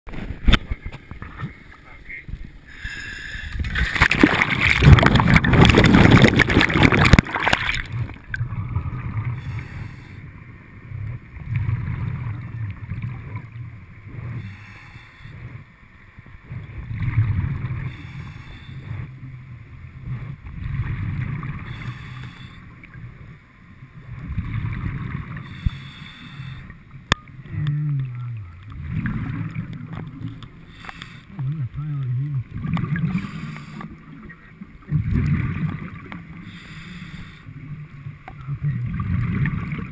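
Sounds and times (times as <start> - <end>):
underwater bubbling breaths: 2.6 - 10.4, 14.1 - 15.7, 16.9 - 19.3, 20.6 - 23.0, 24.2 - 31.6, 32.4 - 34.2, 34.9 - 37.8
splashing and bubbles: 3.5 - 9.8, 10.9 - 14.6, 16.4 - 18.2, 20.0 - 22.2, 24.0 - 25.9, 27.0 - 36.6, 37.5 - 39.9.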